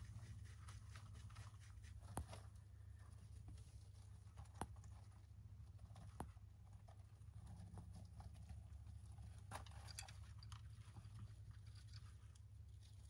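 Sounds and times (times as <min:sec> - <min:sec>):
hamsters scratching in bedding: 0:00.0 - 0:09.8.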